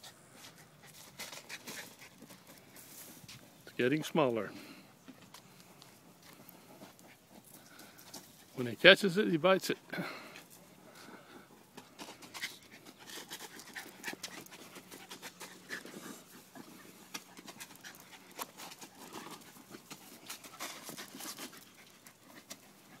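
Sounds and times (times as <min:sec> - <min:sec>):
dog panting: 0:00.0 - 0:03.6, 0:04.6 - 0:08.7, 0:09.8 - 0:23.0.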